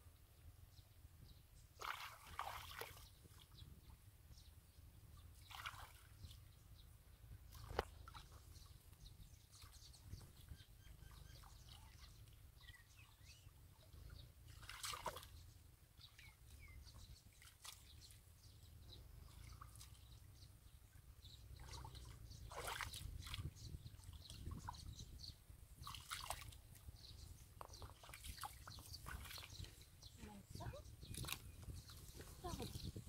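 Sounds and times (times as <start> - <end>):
sloshing in muddy water: 1.8 - 3.6, 5.2 - 6.5, 7.4 - 12.3, 13.6 - 18.4, 19.0 - 24.9, 25.7 - 33.0.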